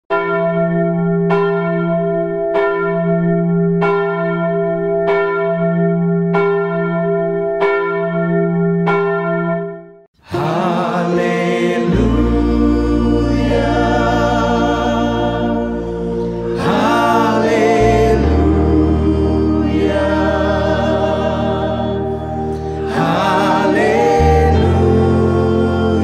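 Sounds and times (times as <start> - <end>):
choir singing worship song: 10.2 - 26.0.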